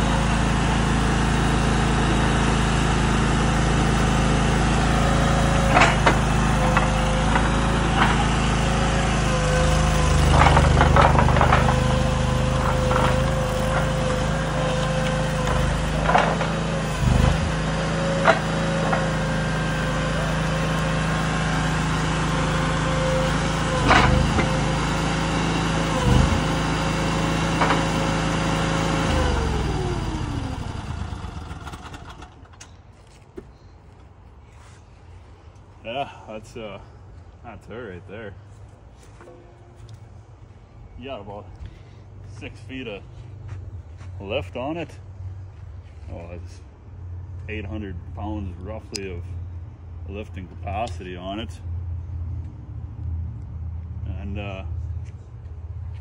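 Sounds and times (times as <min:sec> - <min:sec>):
engine winding down: 0:00.0 - 0:32.8
small engine running with whine: 0:00.0 - 0:32.8.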